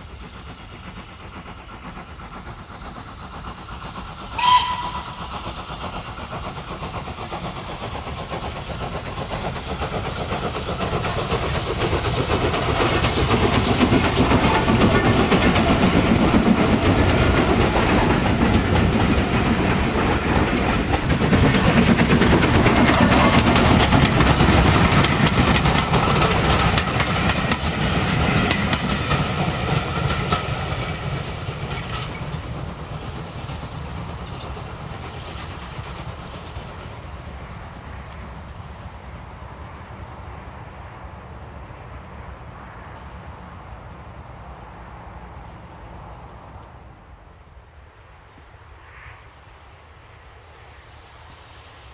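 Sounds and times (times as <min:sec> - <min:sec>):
train wheels clattering on track: 0:00.0 - 0:40.7
steam locomotive exhaust: 0:00.0 - 0:47.2.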